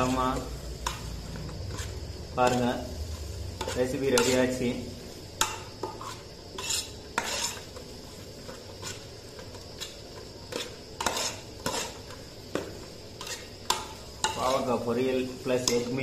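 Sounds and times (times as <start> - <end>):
metal spoon scraping metal pot: 0.0 - 2.9, 3.6 - 4.6, 5.4 - 7.8, 9.8 - 12.2, 13.2 - 14.8.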